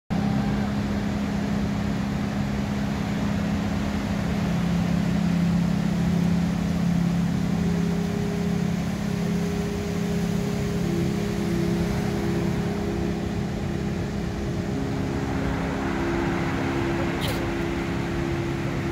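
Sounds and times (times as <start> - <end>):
low steady hum: 0.1 - 18.9
ocean surf: 0.1 - 18.9
higher tone: 5.3 - 18.9.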